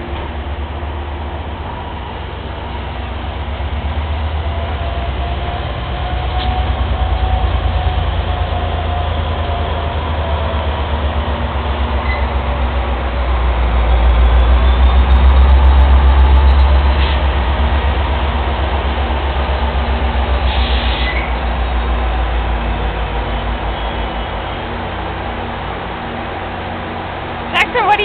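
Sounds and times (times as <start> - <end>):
diesel locomotive engine rumble: 0.0 - 28.0
train coaches rolling: 0.0 - 28.0
brief high hiss: 20.5 - 21.3.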